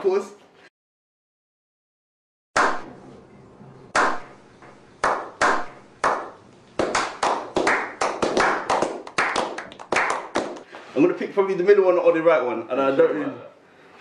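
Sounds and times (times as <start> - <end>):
men clapping: 5.0 - 10.7.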